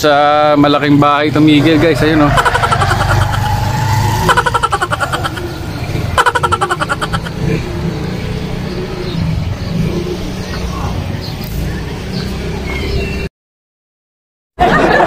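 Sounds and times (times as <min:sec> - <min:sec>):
vehicle engine running: 0:01.0 - 0:12.5.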